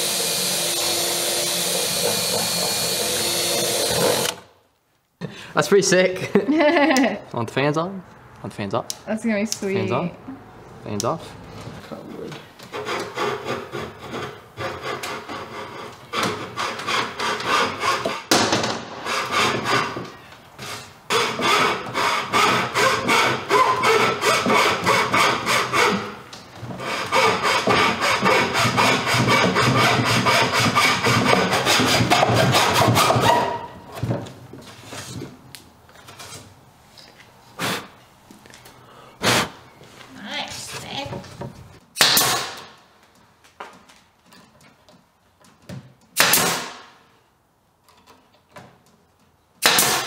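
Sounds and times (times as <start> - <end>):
hacksaw cutting plywood: 0.0 - 4.5, 12.7 - 18.4, 19.0 - 33.7, 42.0 - 42.6, 46.2 - 46.8, 49.6 - 50.0.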